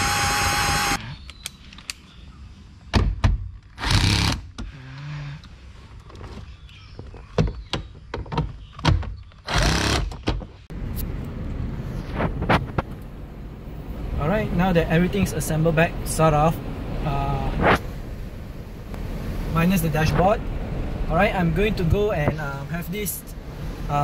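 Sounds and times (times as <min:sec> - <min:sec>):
cordless drill whining: 0:00.0 - 0:01.0, 0:09.5 - 0:10.1.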